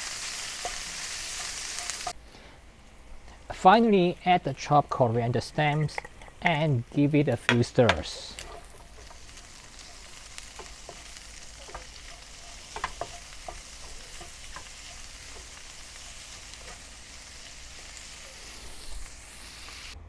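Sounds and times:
meat sizzling in a wok: 0:00.0 - 0:02.2, 0:07.8 - 0:20.0
wooden spatula scraping pan: 0:07.5 - 0:16.9.

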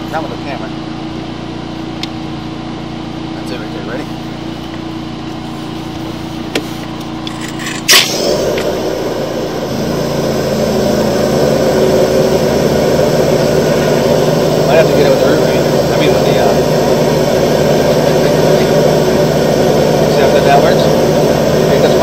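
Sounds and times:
engine running: 0:00.0 - 0:22.0
sharp burst: 0:07.6 - 0:22.0.

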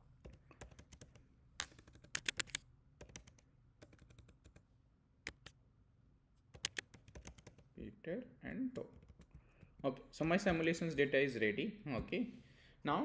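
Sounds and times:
keyboard typing: 0:00.2 - 0:04.6, 0:06.5 - 0:07.7, 0:08.7 - 0:10.6.

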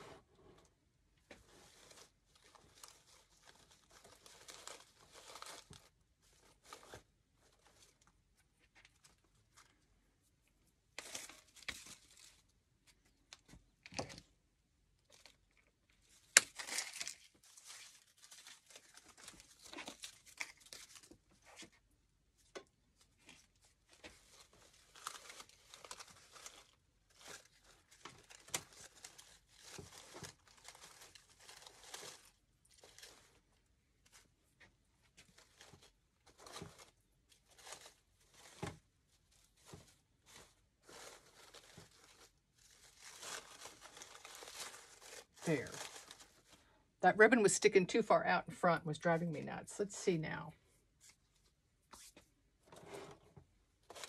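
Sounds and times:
artificial leaves rustling: 0:01.4 - 0:08.1, 0:15.1 - 0:21.7, 0:23.0 - 0:34.3, 0:35.1 - 0:46.8, 0:53.8 - 0:54.0.

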